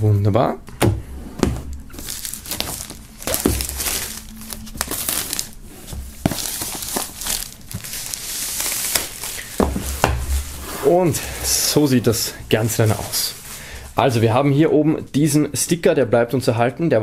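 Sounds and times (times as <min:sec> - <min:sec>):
plastic film crinkling: 0:01.8 - 0:14.4.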